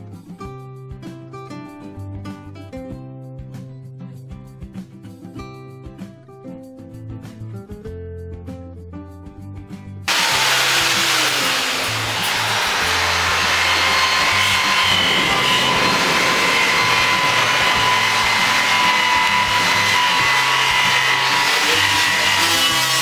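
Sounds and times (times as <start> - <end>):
background music with bass: 0.0 - 23.0
electric power tool hissing: 10.1 - 23.0.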